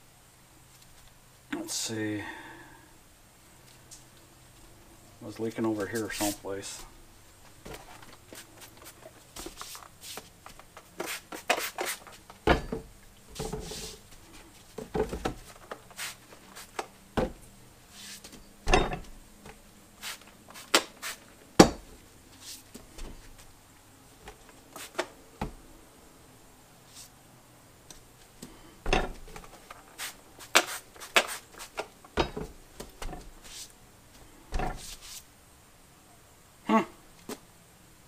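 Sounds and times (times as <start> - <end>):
spray bottle squirting: 11.0 - 12.2, 20.0 - 21.2, 29.9 - 31.9
knocks: 12.4 - 13.7
clicks and rubbing of turned tire: 27.9 - 33.7, 34.5 - 35.2.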